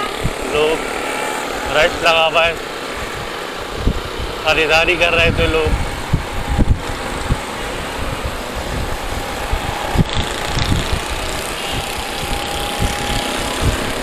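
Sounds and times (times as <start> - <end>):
motorcycle engine running: 0.0 - 14.0
wind rumbling on microphone: 0.0 - 14.0.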